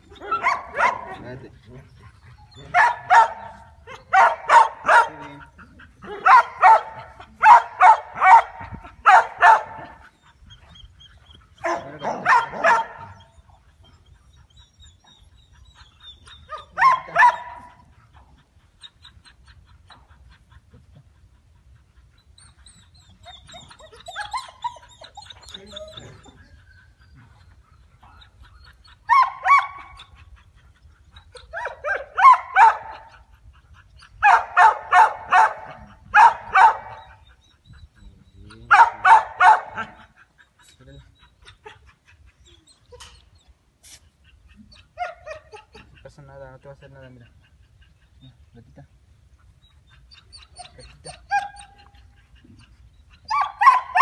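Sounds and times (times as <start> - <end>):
young dog barking: 0.2 - 1.3, 2.6 - 10.0, 11.6 - 13.2, 16.5 - 17.8, 29.1 - 29.9, 31.5 - 33.1, 34.2 - 37.2, 38.7 - 40.1, 50.6 - 51.9, 53.3 - 54.0.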